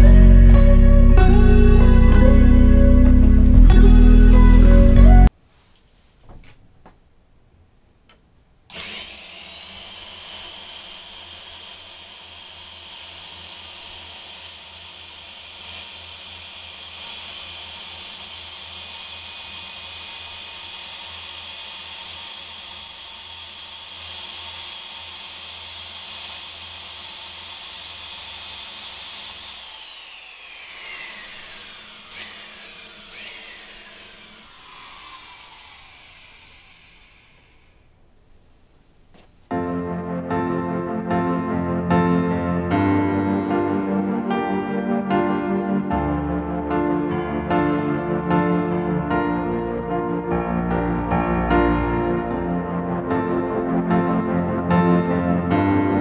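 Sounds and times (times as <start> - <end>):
electric drill shaving wood: 8.7 - 38.0.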